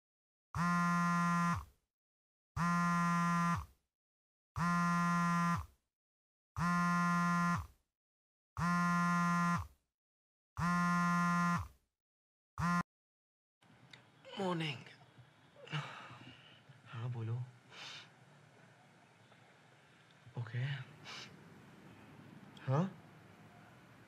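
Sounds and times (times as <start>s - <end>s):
smartphone vibrating on bed: 0.6s - 1.8s, 2.6s - 3.8s, 4.6s - 5.8s, 6.6s - 7.8s, 8.6s - 9.8s, 10.6s - 11.8s, 12.6s - 12.9s.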